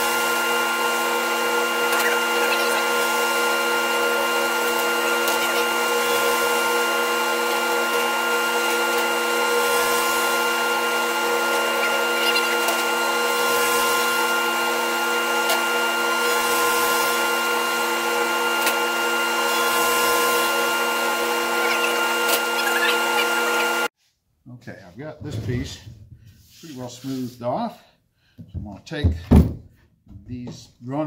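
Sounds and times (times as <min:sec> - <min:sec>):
planer cutting hiss: 0:00.0 - 0:23.9
thickness planer whine: 0:00.0 - 0:23.9.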